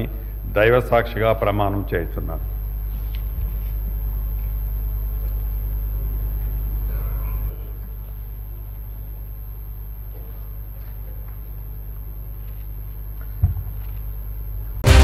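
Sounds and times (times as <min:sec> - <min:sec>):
low room tone hum: 0:00.0 - 0:15.0
faint voice: 0:06.9 - 0:07.9.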